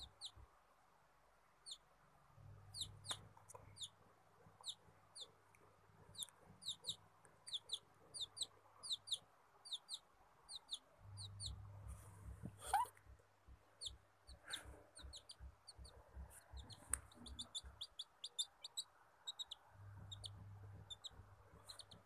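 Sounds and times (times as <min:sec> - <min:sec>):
chick peeping: 0:00.0 - 0:00.4, 0:01.6 - 0:01.8, 0:02.7 - 0:05.4, 0:06.0 - 0:13.0, 0:13.8 - 0:22.0.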